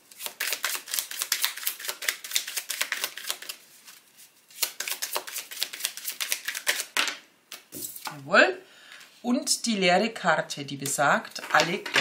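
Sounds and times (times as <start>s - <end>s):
cards being shuffled: 0.1s - 8.2s.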